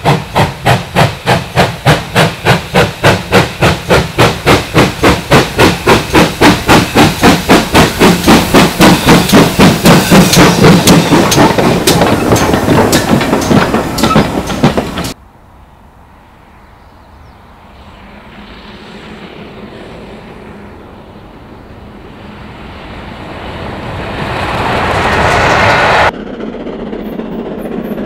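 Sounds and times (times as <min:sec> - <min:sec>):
steam locomotive exhaust beating: 0:00.0 - 0:15.2
train rumbling on rails: 0:00.0 - 0:28.0.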